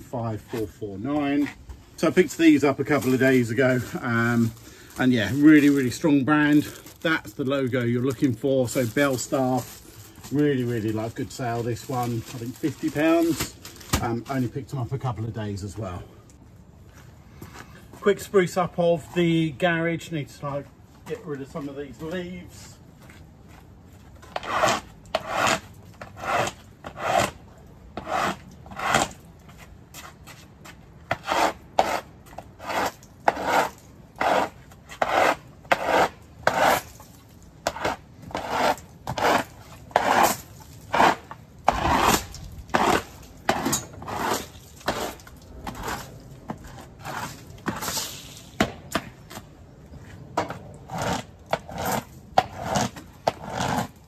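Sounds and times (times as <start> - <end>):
push broom sweeping concrete: 24.3 - 27.4, 28.0 - 37.0, 37.6 - 48.6, 50.9 - 54.0.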